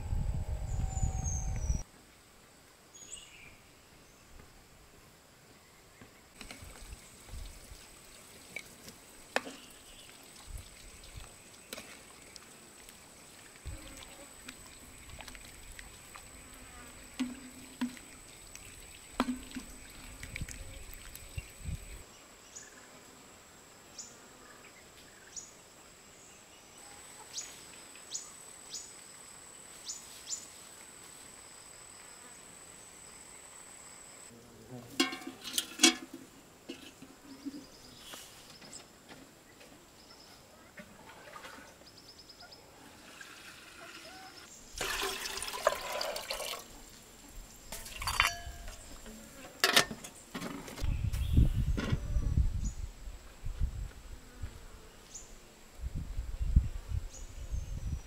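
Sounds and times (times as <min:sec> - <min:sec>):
high insect whine: 0:00.0 - 0:01.8.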